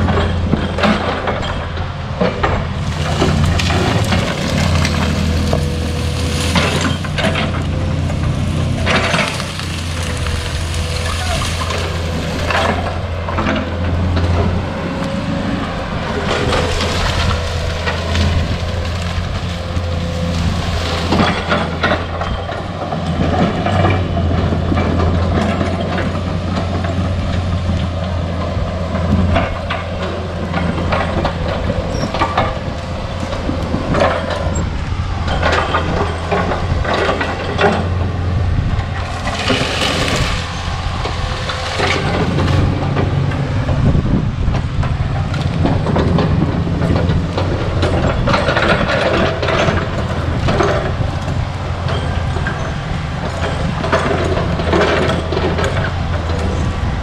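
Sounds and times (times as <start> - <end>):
excavator diesel engine running: 0.0 - 57.0
bucket clanking and scraping: 2.2 - 14.3.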